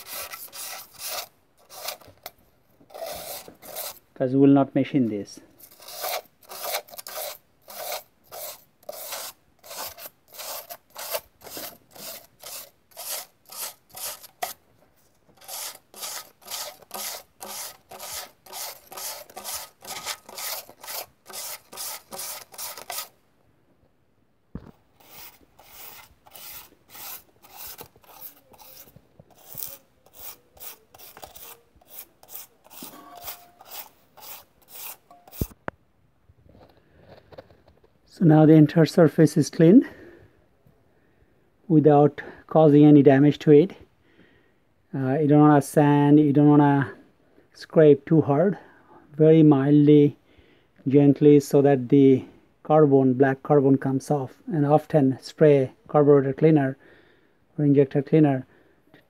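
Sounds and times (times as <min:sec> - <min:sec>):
sandpaper rubbing on metal: 0:00.0 - 0:02.1, 0:02.9 - 0:04.0, 0:05.6 - 0:14.6, 0:15.4 - 0:23.1, 0:25.0 - 0:35.5.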